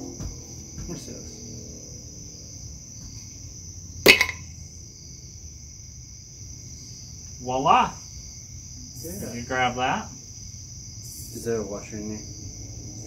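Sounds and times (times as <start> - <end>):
metal housing knocked sharp pop: 4.1 - 4.5.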